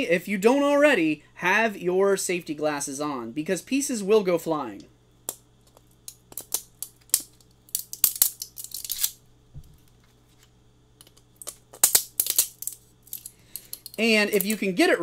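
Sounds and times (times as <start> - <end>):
plastic cracking and snapping: 11.0 - 14.6.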